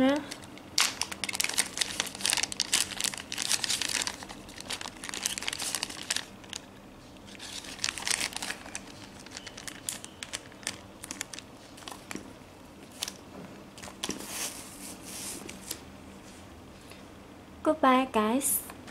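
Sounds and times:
plastic sleeves crinkling: 0.0s - 15.8s.

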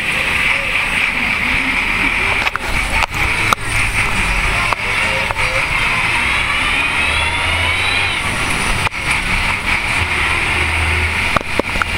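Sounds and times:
bus engine: 0.0s - 11.9s
thin rising whine: 2.2s - 11.4s.

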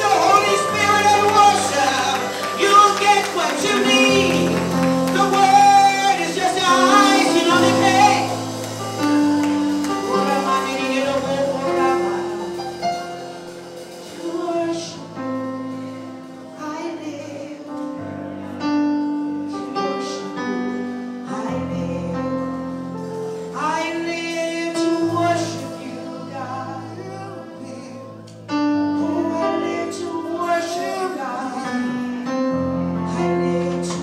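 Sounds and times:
woman singing with vibrato: 0.0s - 12.8s
sustained accompaniment chords: 0.0s - 16.6s.

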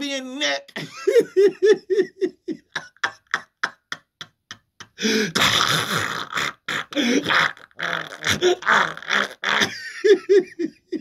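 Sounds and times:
man making choking sounds: 4.8s - 10.0s.

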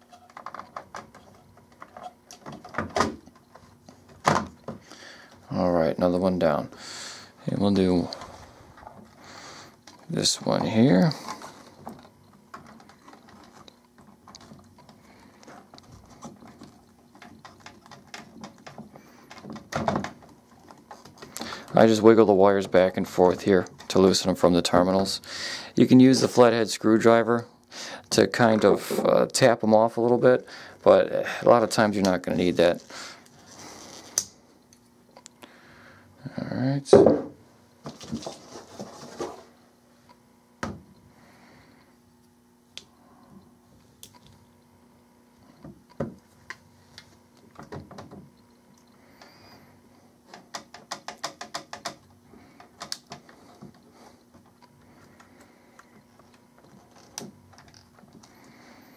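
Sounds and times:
connectors clicking and rattling: 0.0s - 5.4s, 9.8s - 24.2s, 50.2s - 58.6s.

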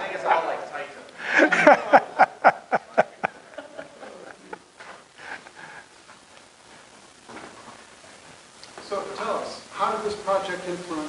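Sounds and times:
hearty laughter: 1.2s - 5.7s.

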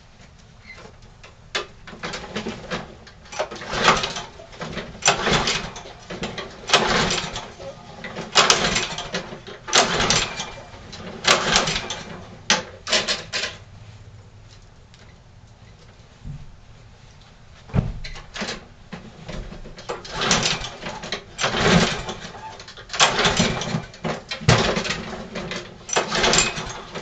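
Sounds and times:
engine cranking without catching: 1.6s - 13.7s, 19.8s - 27.0s
recoil starter cord pulls: 3.3s - 7.6s, 8.2s - 13.6s, 19.8s - 27.0s.

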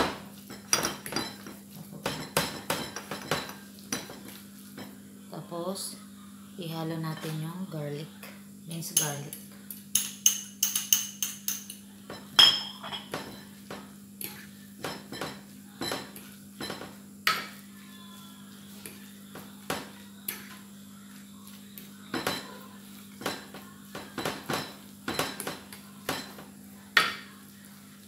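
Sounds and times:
spoon clinking against bowl: 9.0s - 9.3s, 9.9s - 13.5s.

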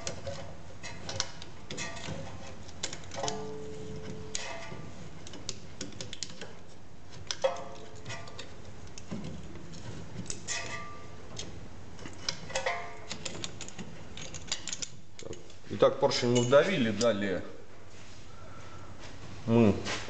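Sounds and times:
metallic clicks and clinks: 12.1s - 15.6s.

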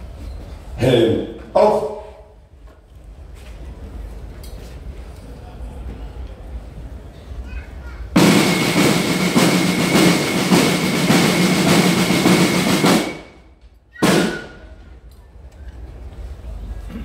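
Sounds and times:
single hard drum stroke: 8.2s - 13.4s, 14.0s - 14.7s
snare and bass drum roll: 8.2s - 14.8s.

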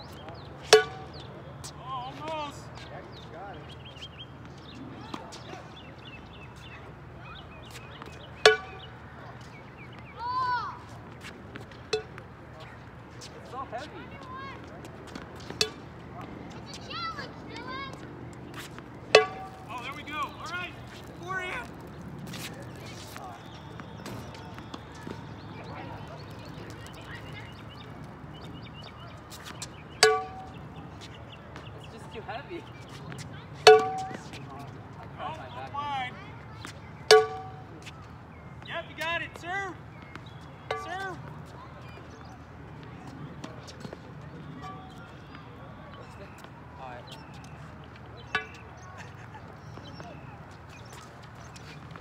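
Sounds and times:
ball clanging on frying pan: 0.7s - 1.1s, 8.5s - 8.9s, 19.1s - 19.8s, 30.0s - 30.6s, 33.7s - 34.4s, 37.1s - 37.6s
frying pan hitting ball clang: 19.2s - 19.6s, 33.7s - 34.2s, 37.1s - 37.6s.

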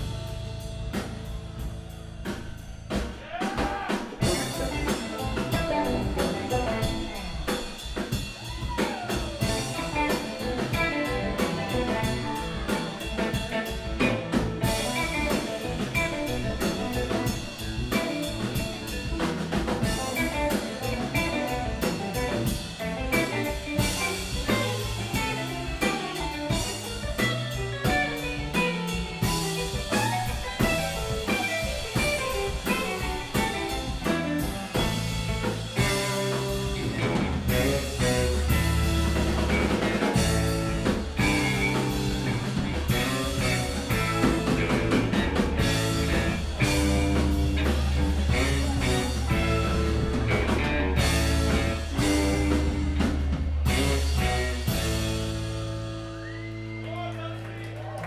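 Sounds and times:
live band playing: 0.0s - 58.0s.

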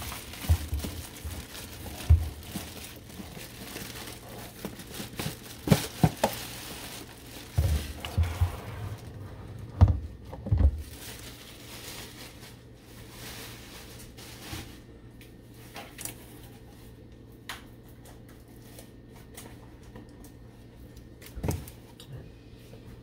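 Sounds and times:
plastic packaging rustling: 0.0s - 17.0s
low steady hum: 0.0s - 23.0s.

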